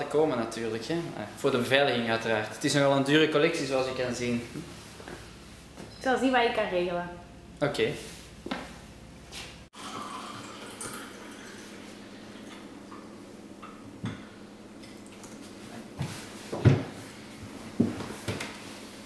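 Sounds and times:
tea pouring into cups: 9.8 - 12.8.

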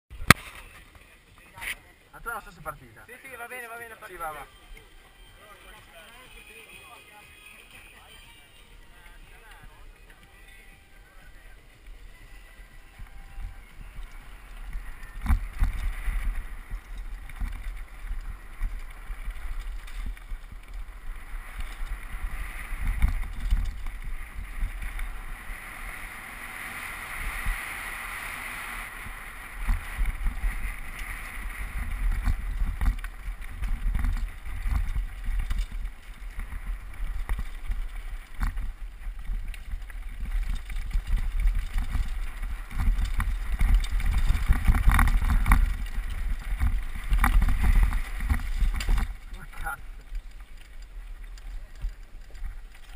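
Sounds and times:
bike rattling over bumps: 11.1 - 52.9
wind rushing over microphone: 13.3 - 49.9.

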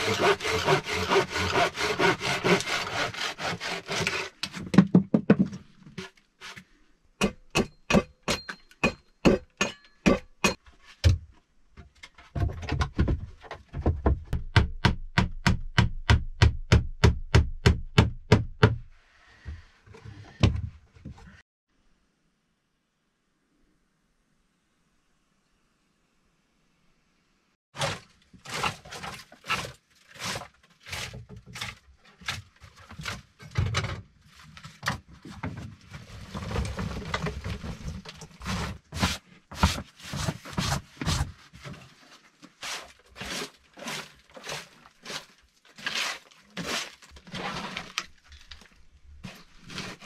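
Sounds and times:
hand saw cutting wood: 0.0 - 4.7, 42.6 - 48.0.

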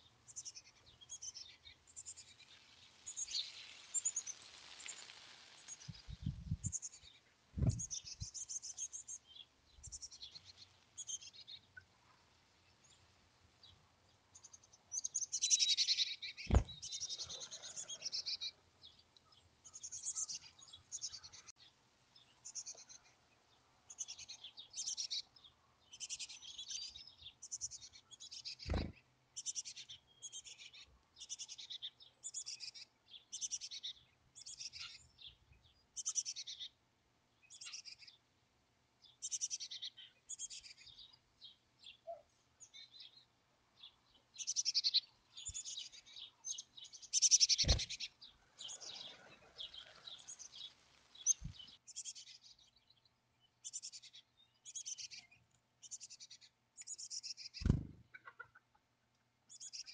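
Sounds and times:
bird chicks begging calls: 44.4 - 52.3.

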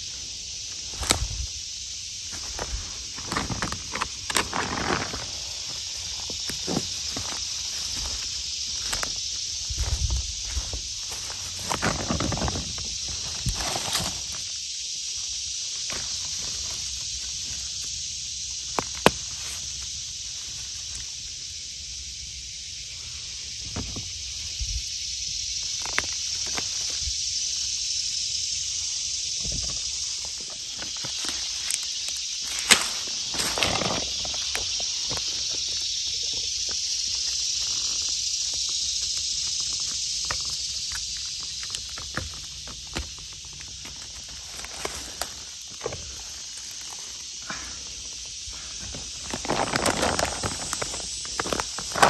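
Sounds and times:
high-pitched insect drone: 0.0 - 52.0
footsteps in dry leaves: 2.3 - 14.4, 48.9 - 52.0
hands rustling leaf litter: 2.4 - 9.2, 48.8 - 52.0.

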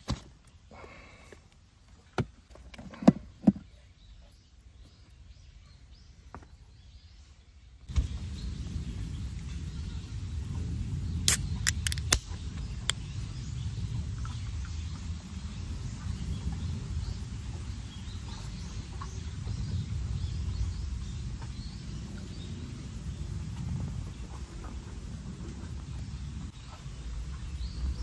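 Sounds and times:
low outdoor rumble: 6.9 - 28.0
drink can tab clicking open: 11.3 - 12.2.

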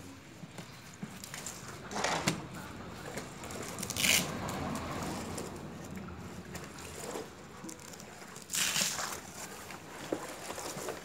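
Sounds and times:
short tearing sound: 3.8 - 4.5, 8.4 - 9.2.

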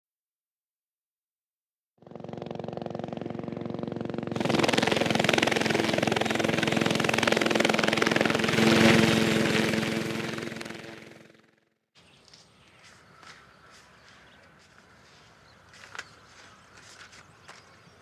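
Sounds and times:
helicopter engine whine: 2.0 - 11.6
helicopter rotor blades beating: 2.0 - 11.7.

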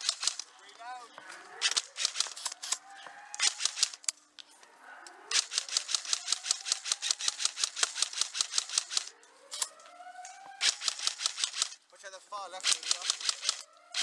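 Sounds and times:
airsoft rifle automatic fire: 0.0 - 0.6, 1.6 - 2.8, 3.4 - 4.0, 5.3 - 9.1, 10.6 - 11.8, 12.5 - 14.0.

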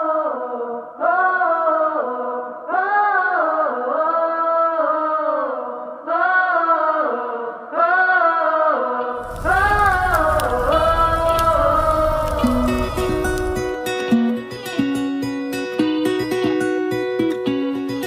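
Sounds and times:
chant with long held vocal notes: 0.0 - 13.8
wind noise: 9.2 - 13.9.

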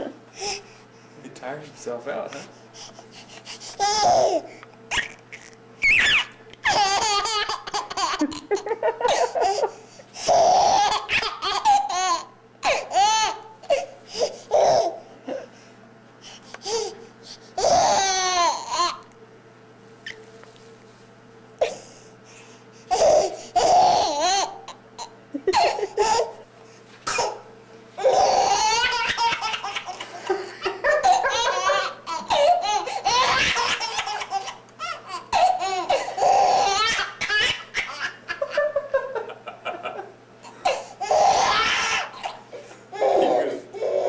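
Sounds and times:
baby laughing: 3.8 - 13.8, 17.6 - 19.0, 22.9 - 26.4, 28.0 - 44.0.

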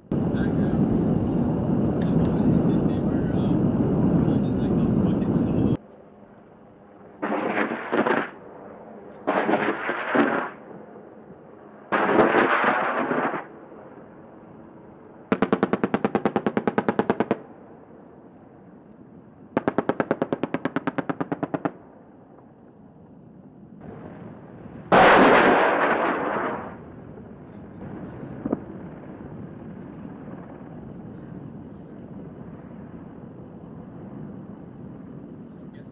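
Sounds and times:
rushing blasts: 0.0 - 5.8, 7.2 - 8.4, 9.3 - 10.6, 11.9 - 13.5, 23.8 - 30.5.

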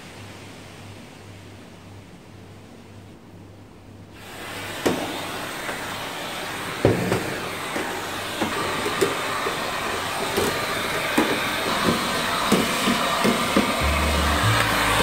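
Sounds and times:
vacuum cleaner running: 4.2 - 15.0.

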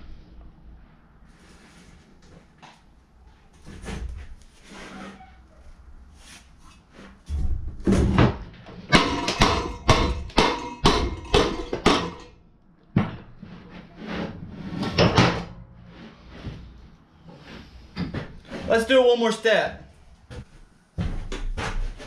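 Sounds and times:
hammer striking metal engine: 8.9 - 12.3.

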